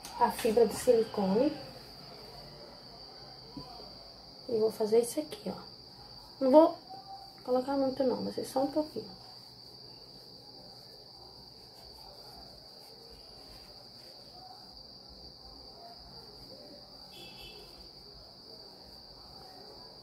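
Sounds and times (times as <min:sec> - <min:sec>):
hands rustling fiberfill: 0:08.4 - 0:14.8.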